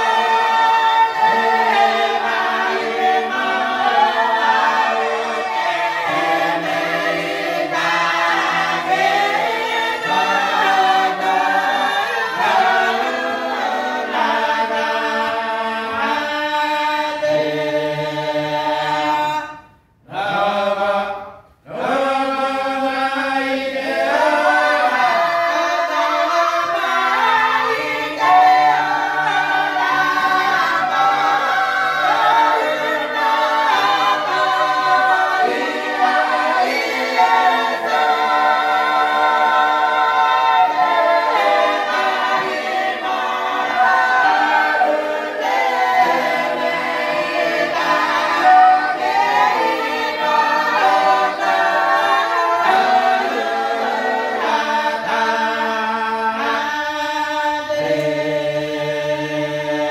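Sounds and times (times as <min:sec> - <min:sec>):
group singing a cappella: 0:00.0 - 0:59.9.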